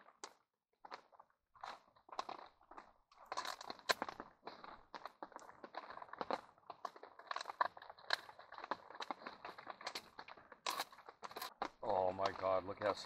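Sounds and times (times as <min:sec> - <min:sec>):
food packaging crinkling: 0:00.0 - 0:13.0.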